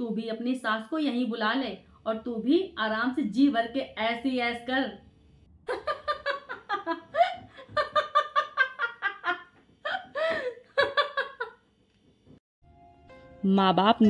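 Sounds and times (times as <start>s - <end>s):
woman laughing: 5.7s - 11.6s.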